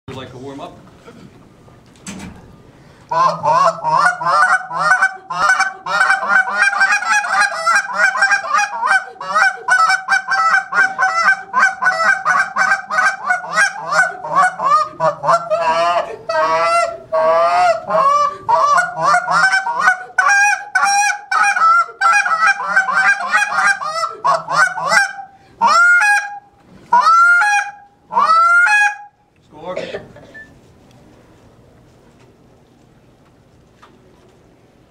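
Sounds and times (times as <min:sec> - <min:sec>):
goose call honks and clucks: 0:03.1 - 0:29.2.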